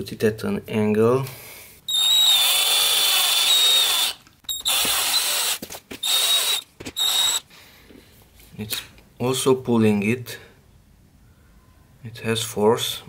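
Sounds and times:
drill motor whining: 1.9s - 7.4s.

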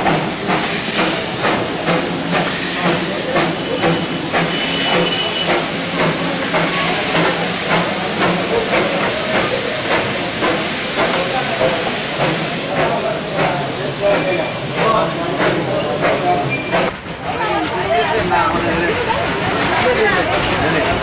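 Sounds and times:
steam locomotive hissing and puffing: 0.0s - 21.0s.

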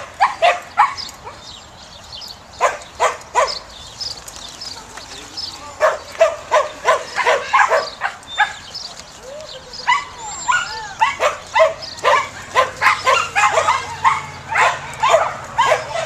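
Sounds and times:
dog yipping excitedly: 5.8s - 8.6s, 9.8s - 16.0s.

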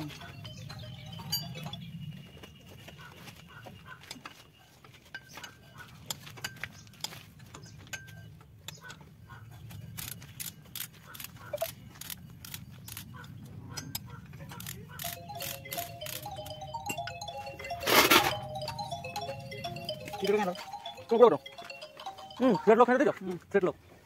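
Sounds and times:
ratchet wrench clicking: 10.0s - 13.1s, 13.9s - 16.3s.

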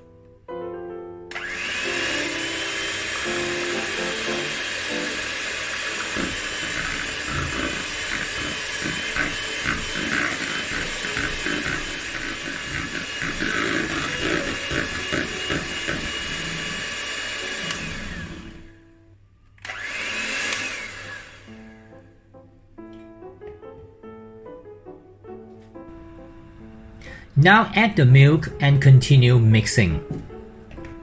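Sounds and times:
electric hand mixer running: 1.3s - 19.0s, 19.6s - 22.2s.

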